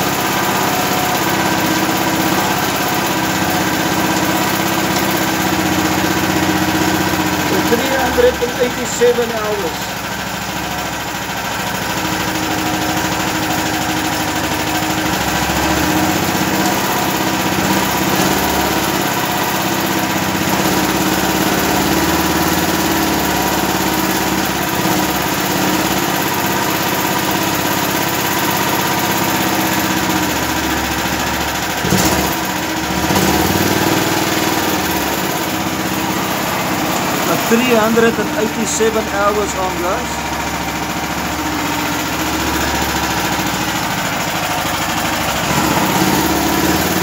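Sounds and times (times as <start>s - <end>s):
generator engine running: 0.0s - 47.0s.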